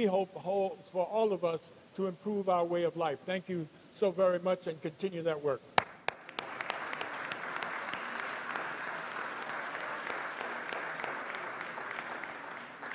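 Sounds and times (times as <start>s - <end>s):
crowd applause: 6.1s - 12.9s.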